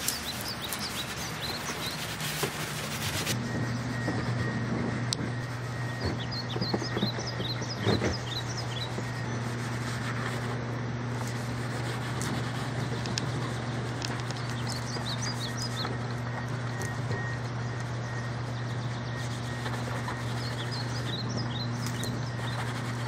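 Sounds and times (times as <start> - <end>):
wet cloth scrubbing wall: 0.0 - 3.4, 5.4 - 10.6, 11.2 - 14.0, 19.2 - 23.0
small birds chirping: 0.0 - 4.6, 5.4 - 10.5, 12.6 - 23.0
steady low hum: 0.0 - 23.0.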